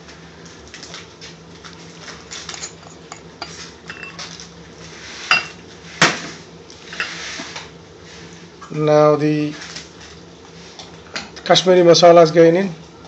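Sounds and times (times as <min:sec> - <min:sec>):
metal utensils clinking: 0:02.3 - 0:04.3.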